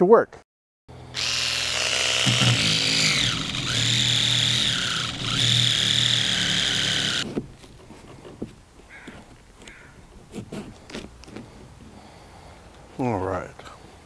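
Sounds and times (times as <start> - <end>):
cordless drill boring: 1.1 - 7.3.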